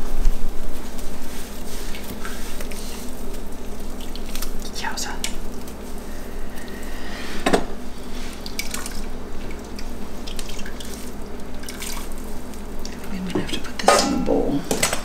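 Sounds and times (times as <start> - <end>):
liquid dripping and splashing: 0.9 - 6.8, 8.3 - 13.2.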